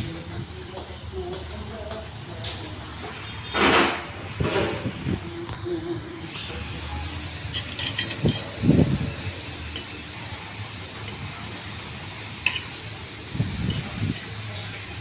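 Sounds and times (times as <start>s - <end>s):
room noise: 0.0s - 15.0s
cutlery clinking on plate: 7.5s - 8.6s, 12.4s - 12.8s.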